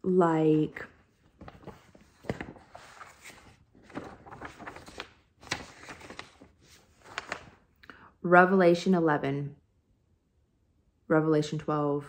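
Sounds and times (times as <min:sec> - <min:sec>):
paper rustling: 0:00.8 - 0:07.8.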